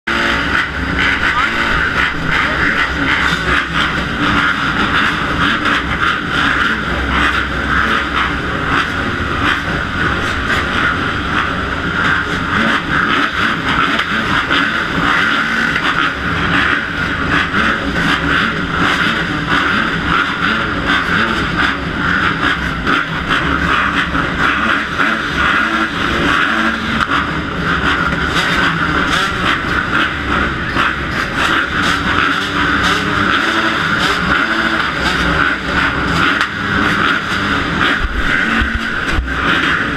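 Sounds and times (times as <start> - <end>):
dirt bike engines running: 0.0 - 39.9.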